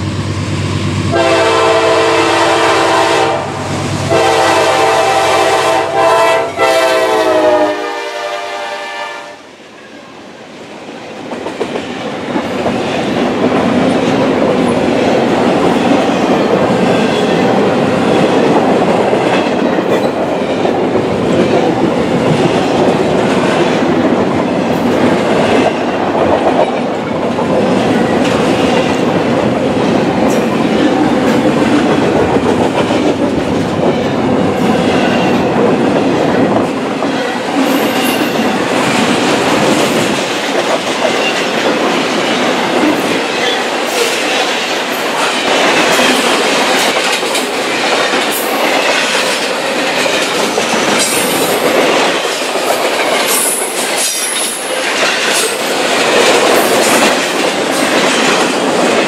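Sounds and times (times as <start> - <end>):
train wheels rumbling on rail: 0.0 - 59.0
wheels clacking over rail joints: 11.2 - 59.0.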